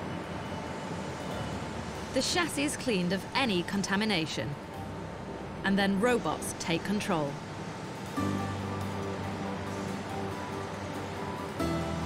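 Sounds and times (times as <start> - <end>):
background music with held notes: 7.9 - 12.0.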